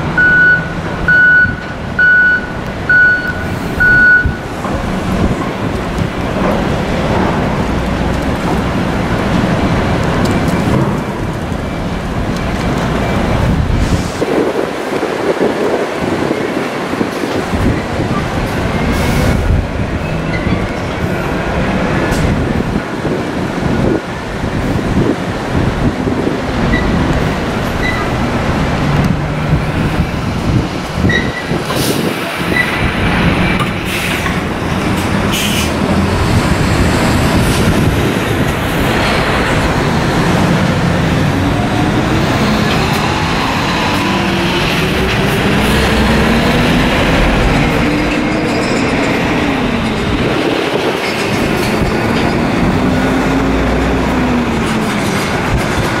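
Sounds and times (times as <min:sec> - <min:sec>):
heavy diesel engines rumbling: 0:00.0 - 0:56.0
truck engine revving: 0:25.8 - 0:56.0.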